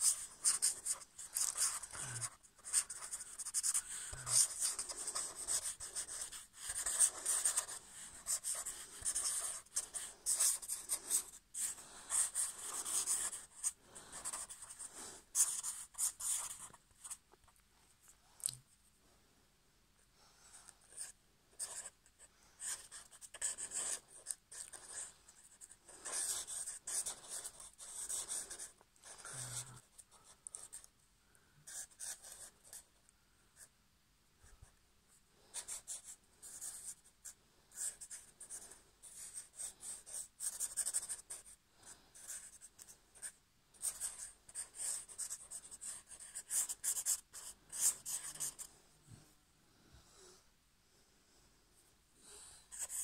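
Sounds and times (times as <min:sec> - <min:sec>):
marker scratching on paper: 0:00.0 - 0:17.2, 0:20.9 - 0:22.0, 0:22.6 - 0:30.9, 0:31.7 - 0:32.8, 0:35.5 - 0:41.6, 0:42.2 - 0:48.7, 0:52.7 - 0:53.0.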